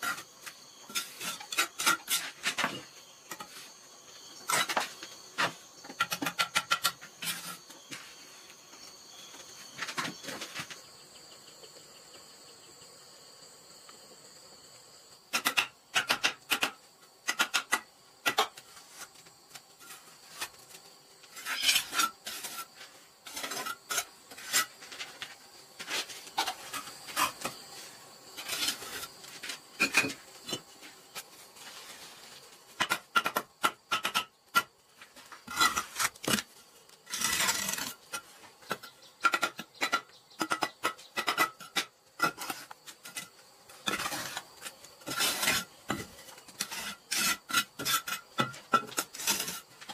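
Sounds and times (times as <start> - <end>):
trowel scraping mortar: 0.9 - 3.5, 4.4 - 7.7, 21.3 - 25.1, 28.4 - 29.2, 35.4 - 49.9
trowel tapping on bricks: 38.7 - 42.5.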